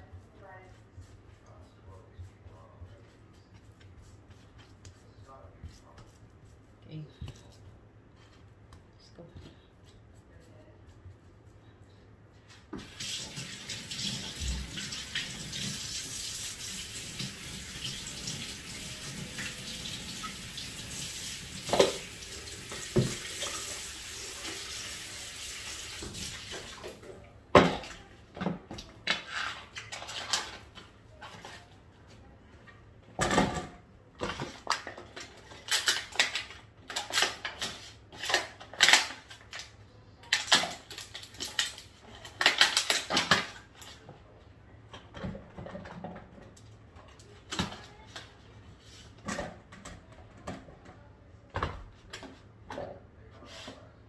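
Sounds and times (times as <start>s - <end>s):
tap running into sink: 16.9s - 23.7s.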